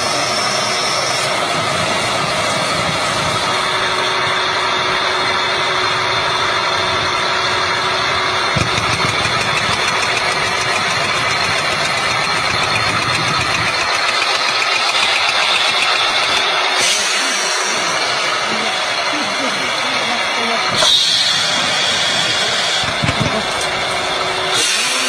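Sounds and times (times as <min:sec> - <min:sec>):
rock drill clattering: 0:08.6 - 0:16.4.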